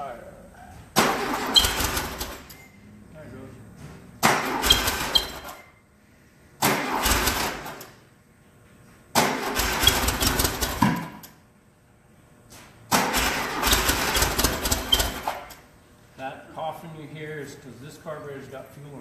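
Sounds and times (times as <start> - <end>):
car engine catching and dying: 0.9 - 2.7, 4.2 - 5.7, 6.6 - 8.0, 9.2 - 11.3, 12.9 - 15.7.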